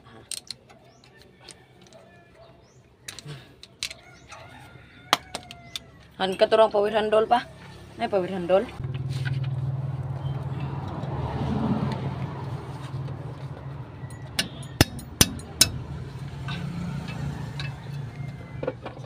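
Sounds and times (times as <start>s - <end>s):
low engine hum: 7.4s - 19.0s
metal tools clinking: 14.1s - 18.8s.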